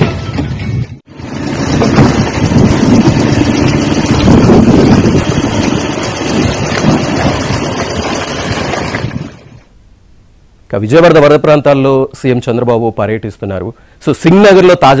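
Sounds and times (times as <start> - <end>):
motorboat engine running: 0.0 - 9.7
wind buffeting microphone: 1.2 - 9.7.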